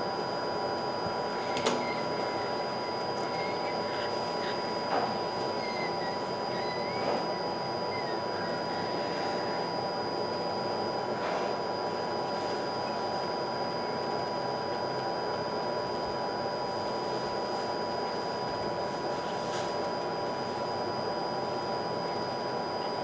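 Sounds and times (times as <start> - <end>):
faint high whine: 0.0 - 23.0
hot air blower hissing: 8.6 - 12.8.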